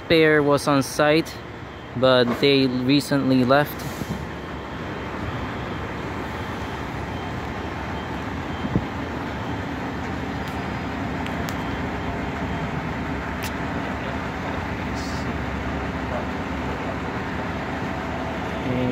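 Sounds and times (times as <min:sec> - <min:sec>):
diesel engines idling: 0:00.0 - 0:18.9
street traffic: 0:00.0 - 0:18.9.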